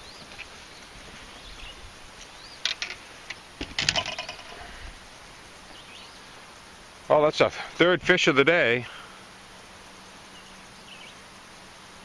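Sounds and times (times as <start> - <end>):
handling noise: 2.2 - 4.7
knocks and clicks: 3.6 - 4.5.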